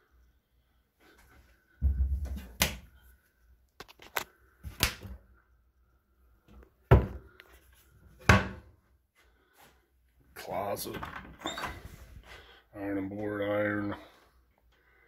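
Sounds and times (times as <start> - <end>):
cabinet doors knocking and clacking: 8.2 - 8.6.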